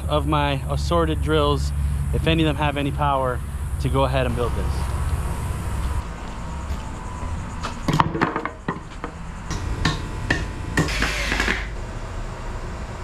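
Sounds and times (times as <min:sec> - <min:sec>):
wooden boards knocking and clattering: 0:07.7 - 0:11.7.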